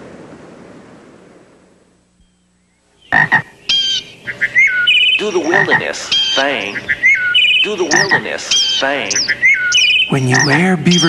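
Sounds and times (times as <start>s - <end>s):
frog-like croaking calls: 2.6s - 11.0s.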